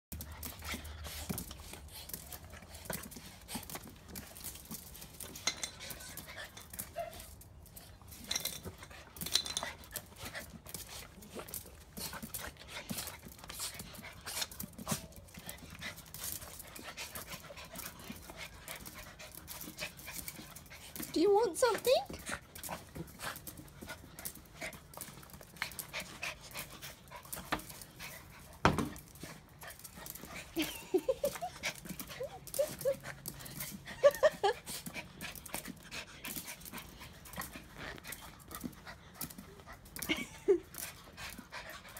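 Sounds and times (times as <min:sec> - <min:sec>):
dogs panting: 0:00.1 - 0:41.9
claws clicking on brick paving: 0:00.2 - 0:21.1, 0:22.1 - 0:41.9.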